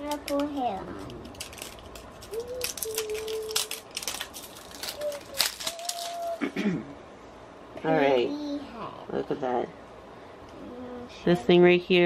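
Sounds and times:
plastic wrappers crinkling and tearing: 0.0 - 6.5.

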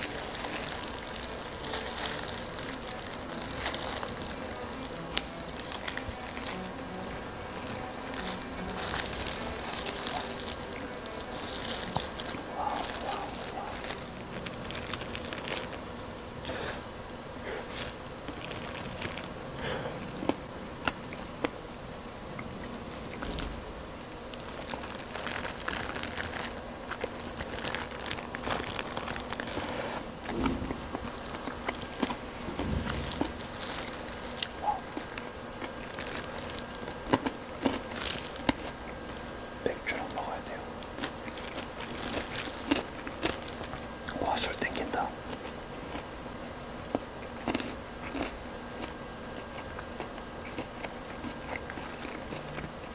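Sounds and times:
plastic gloves crinkling: 0.0 - 15.9, 17.5 - 19.4, 23.1 - 46.2
crunchy bites and chewing: 0.0 - 16.8, 17.4 - 21.6, 22.4 - 52.9
faint steady hum: 0.0 - 52.9.

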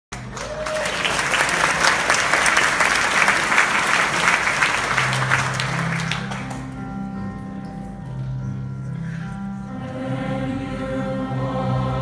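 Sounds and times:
audience applauding: 0.1 - 6.8.

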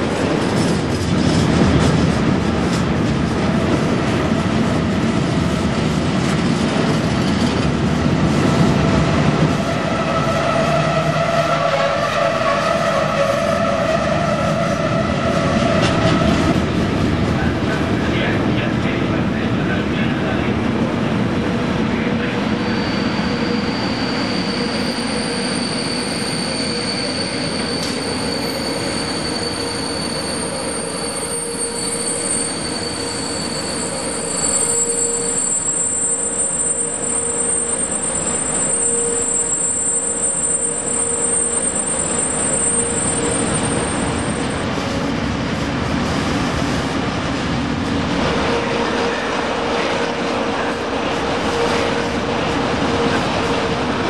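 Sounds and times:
freight train rolling: 0.0 - 54.0
high-pitched wheel squeal: 9.8 - 16.5, 22.6 - 44.6.

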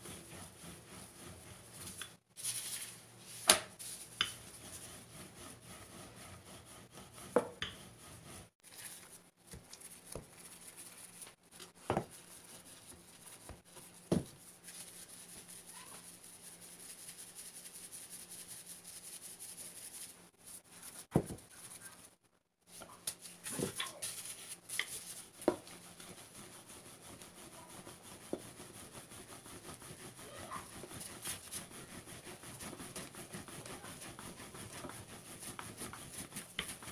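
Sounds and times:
utensils rubbing on wooden board: 0.0 - 2.2, 3.8 - 8.6, 23.7 - 36.9.

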